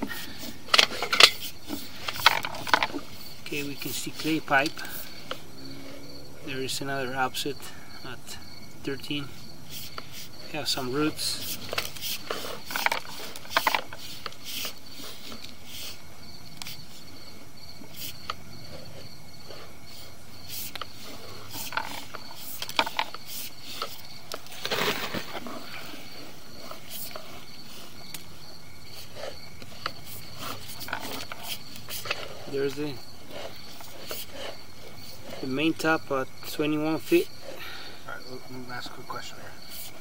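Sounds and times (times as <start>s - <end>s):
crickets chirring: 0.0s - 40.0s.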